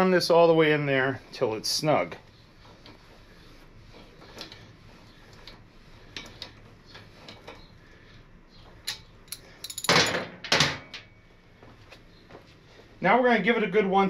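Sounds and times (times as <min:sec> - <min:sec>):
tool clattering on metal: 0:09.6 - 0:11.1.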